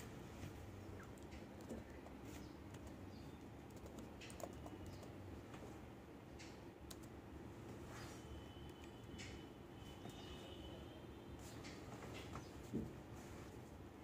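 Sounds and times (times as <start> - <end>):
keyboard typing: 1.0 - 5.3, 6.4 - 7.2.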